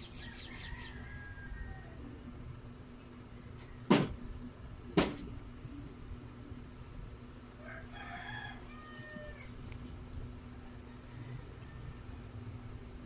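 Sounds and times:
rooster crowing: 0.1s - 2.2s, 7.6s - 9.6s, 10.5s - 12.4s.

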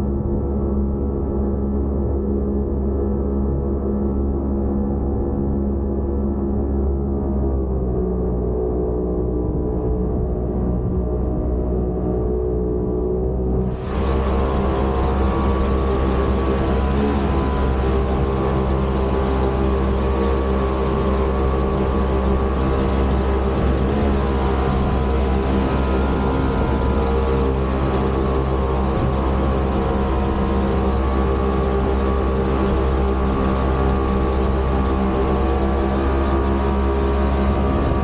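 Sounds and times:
motorboat engine running: 0.0s - 38.0s
water spraying off hull: 13.6s - 38.0s.

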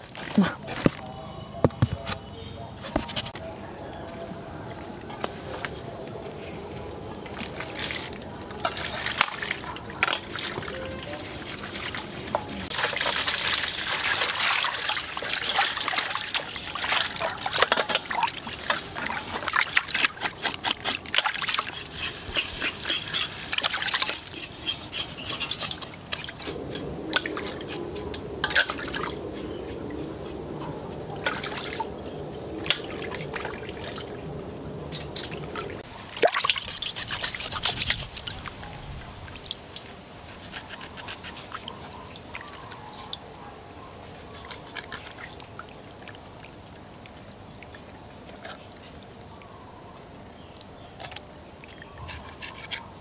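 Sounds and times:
water pouring into metal basin: 12.7s - 20.0s
hands splashing water: 35.2s - 38.5s.

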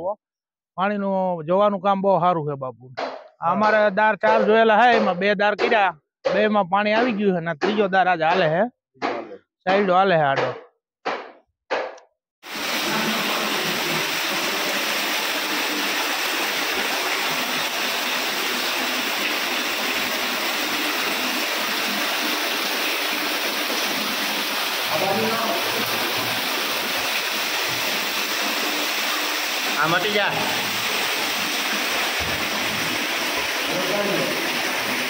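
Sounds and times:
water gushing into a well: 12.4s - 35.0s.

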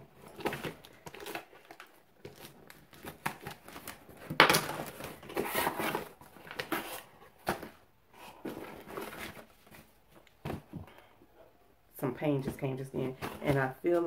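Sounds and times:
packaging crinkling and rustling: 0.0s - 10.6s.

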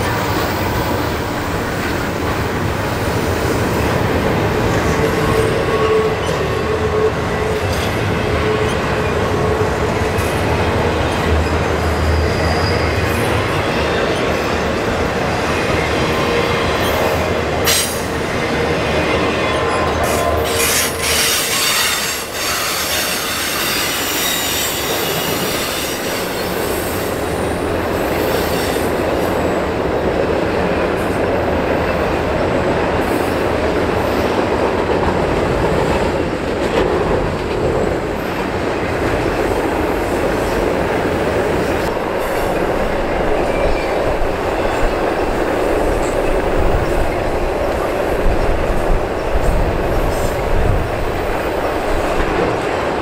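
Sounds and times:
sharp train clanks: 0.0s - 53.0s
train wheels rumbling on rails: 0.0s - 53.0s
wheel squeal: 11.9s - 13.1s, 19.7s - 26.6s.

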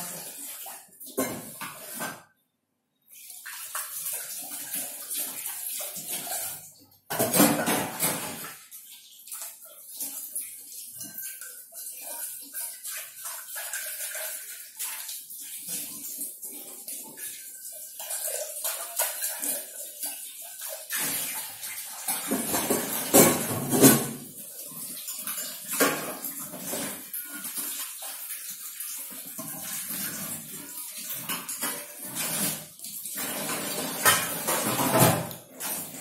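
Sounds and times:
tap water running into sink: 3.2s - 36.0s
pots and glass clinking: 7.1s - 8.5s, 22.2s - 24.3s, 33.2s - 35.8s.

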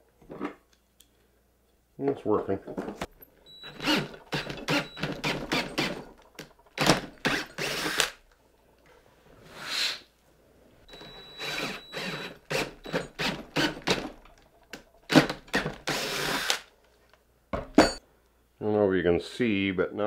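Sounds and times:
cordless drill boring into antler: 3.5s - 8.2s, 10.9s - 14.0s, 15.1s - 16.7s.

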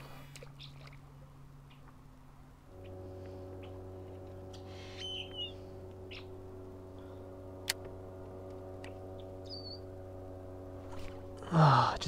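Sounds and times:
steady low hum: 0.0s - 12.0s
whistled bird call: 4.5s - 6.4s, 9.4s - 9.9s.

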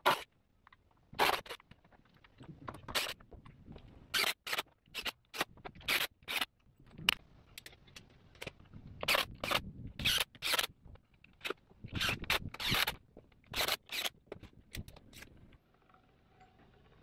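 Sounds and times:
sharp scraping on wood: 11.9s - 14.2s.

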